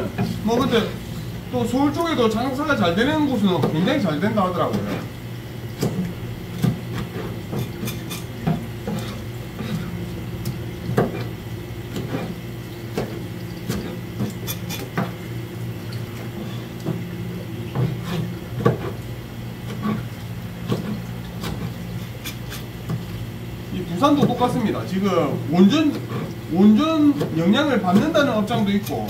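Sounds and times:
steady low hum: 0.0s - 29.0s
knife chopping on cutting board: 17.8s - 19.0s.

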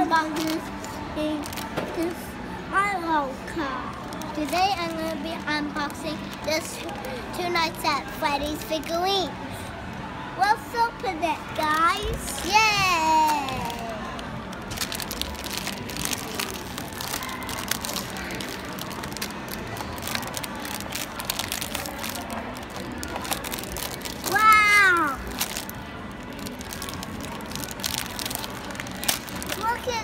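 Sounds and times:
foil wrapper crinkling: 11.6s - 30.0s.

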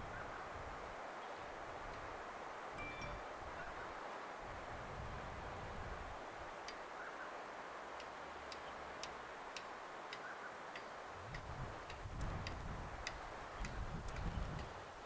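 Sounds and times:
steady hiss: 0.0s - 15.0s
light sharp ticking: 7.9s - 14.8s.

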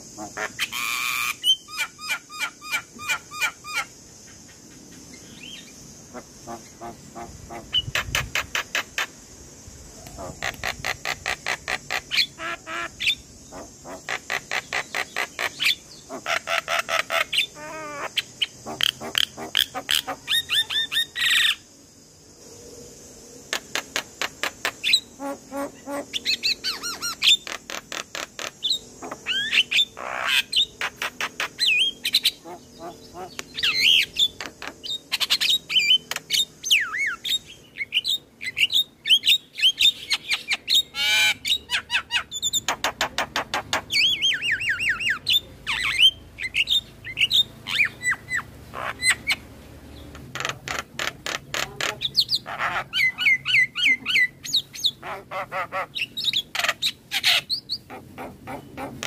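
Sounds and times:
bird singing harsh chattering trills: 10.1s - 21.7s, 23.6s - 57.9s.

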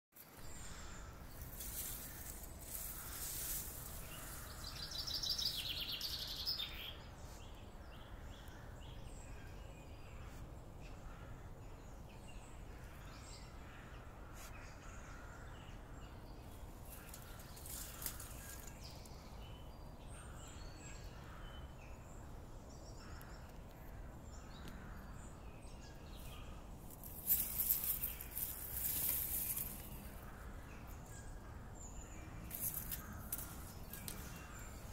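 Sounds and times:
loud hissing rustle: 1.5s - 4.6s, 26.9s - 30.1s.

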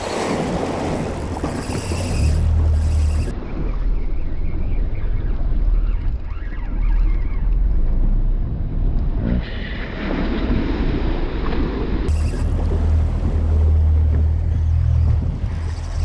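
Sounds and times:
rough sea washing against boat: 0.0s - 3.8s, 9.1s - 16.0s
wind buffeting microphone: 0.0s - 6.4s, 7.8s - 16.0s.

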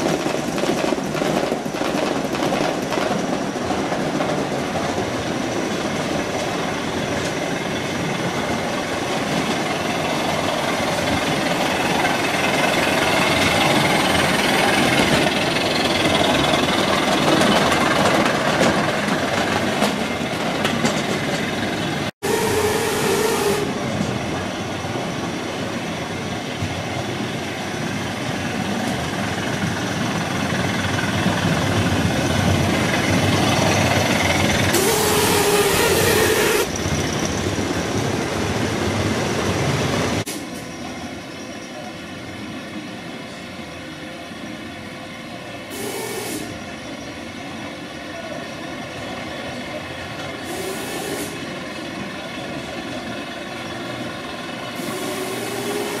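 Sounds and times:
model train wheels rattling on rails: 9.2s - 21.9s, 54.8s - 56.0s.

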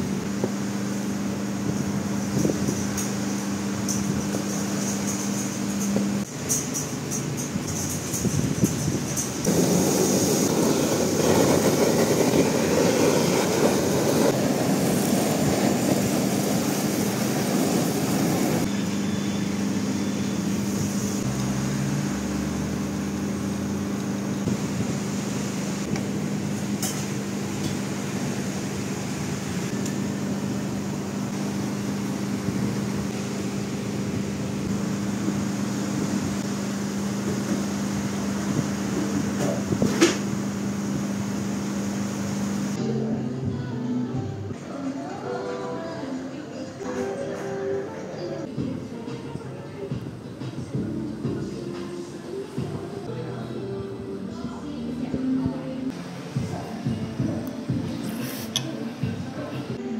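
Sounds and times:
blowtorch rushing: 7.9s - 42.8s.

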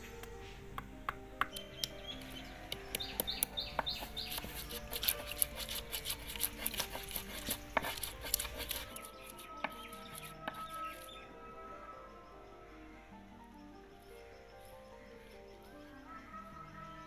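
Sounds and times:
soft background music: 0.0s - 17.0s
stone pestle grinding spice paste: 2.7s - 11.2s.

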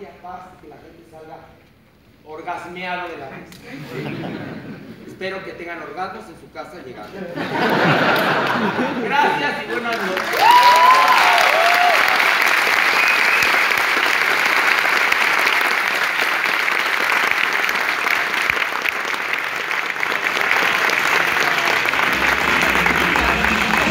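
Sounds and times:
audience clapping: 7.6s - 8.8s, 9.4s - 23.9s.

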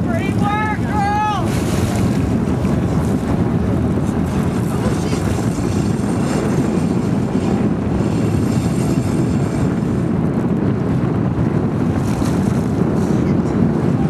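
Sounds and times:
water washing against boat hull: 0.0s - 14.0s
wind buffeting microphone: 0.0s - 14.0s.

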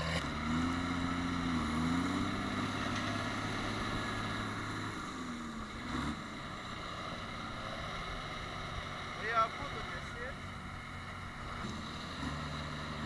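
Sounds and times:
diesel tractor engines under load: 0.0s - 13.0s.

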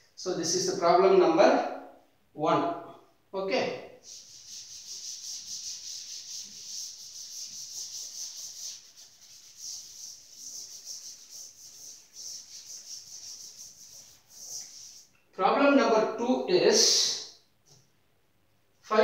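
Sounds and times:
cloth rubbing on chalkboard: 4.0s - 15.2s.

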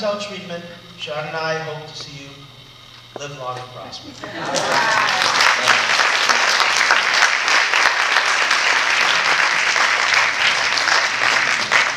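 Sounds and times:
audience applauding: 4.4s - 11.9s.

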